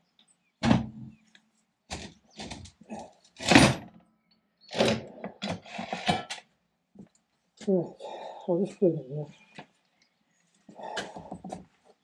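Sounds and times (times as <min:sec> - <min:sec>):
scrapes and knocks on metal: 0:04.8 - 0:06.5.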